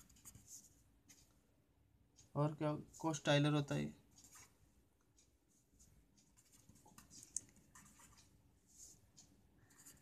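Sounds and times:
marker scratching on paper: 0:00.0 - 0:01.2, 0:06.4 - 0:09.0.

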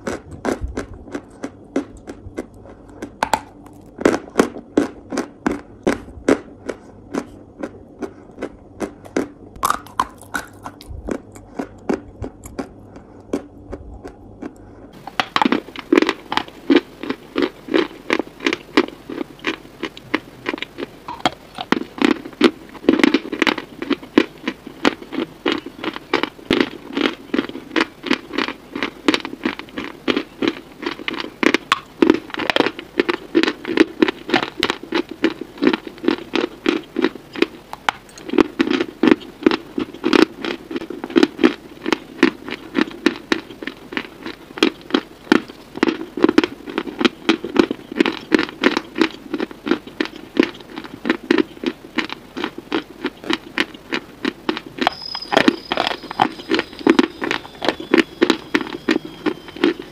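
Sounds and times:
chewing with sharp crunches: 0:00.0 - 0:59.9.

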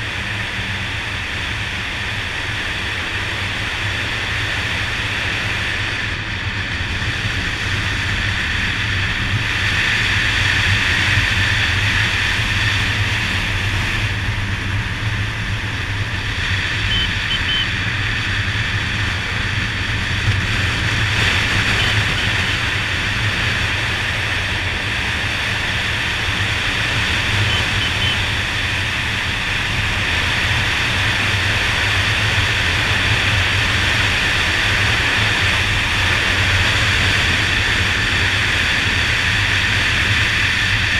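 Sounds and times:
motorcycle engine humming: 0:00.0 - 0:40.9
faint high chirps: 0:16.8 - 0:17.7.

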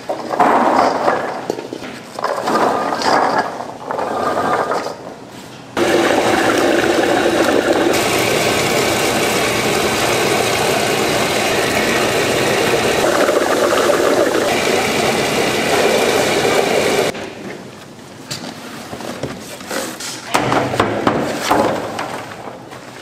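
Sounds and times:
garlic grinder running: 0:05.8 - 0:17.2.

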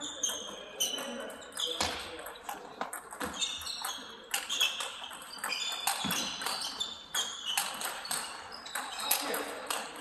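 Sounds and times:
table tennis balls clicking: 0:00.0 - 0:10.0
short high squeaks: 0:03.3 - 0:09.2.

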